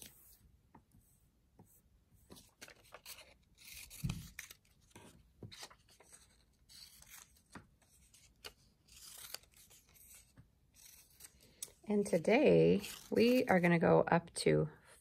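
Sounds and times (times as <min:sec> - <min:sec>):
paper rustling on a tabletop: 0:02.2 - 0:13.6
scissors snipping paper: 0:02.7 - 0:13.6.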